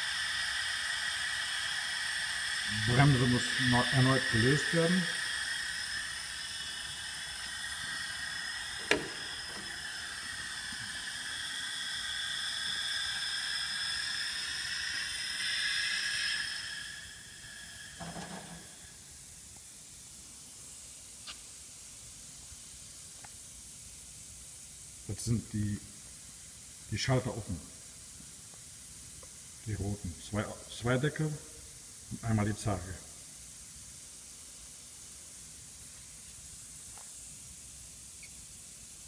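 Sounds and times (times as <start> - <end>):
extractor hissing: 0.0 - 19.5
sharp click: 8.8 - 9.6.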